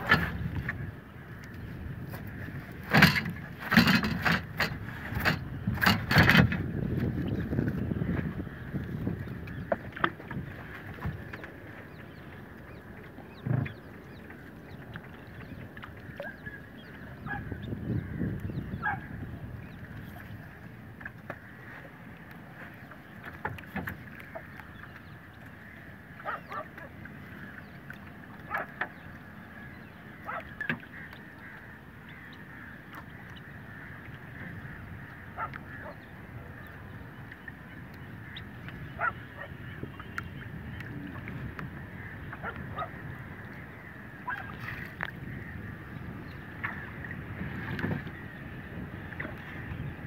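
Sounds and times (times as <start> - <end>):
water around boat: 0.0 - 50.0
wind: 0.0 - 50.0
honking bird calls: 10.9 - 19.9, 21.3 - 50.0.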